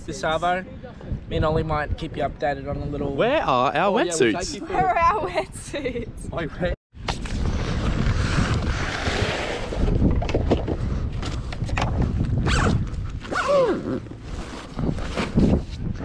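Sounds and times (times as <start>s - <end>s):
wind buffeting microphone: 0.0s - 16.0s
zip being pulled open: 7.4s - 9.9s, 12.4s - 15.6s.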